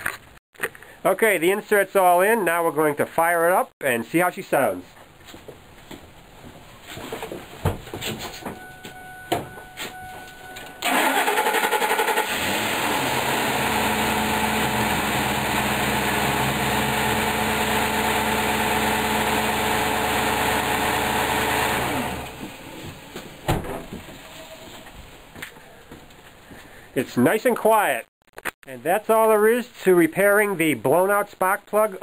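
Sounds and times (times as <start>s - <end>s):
engine starter cranking: 10.8s - 13.2s.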